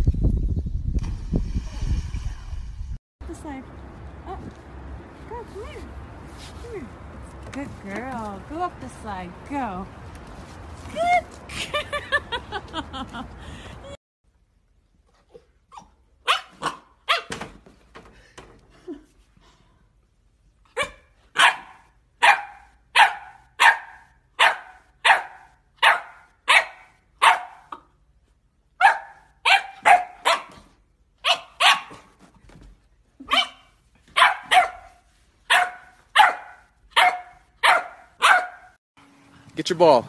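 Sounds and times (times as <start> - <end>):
puppy barking: 15.8 - 17.4, 20.8 - 27.9, 28.8 - 30.6, 31.2 - 32.1, 33.2 - 38.8.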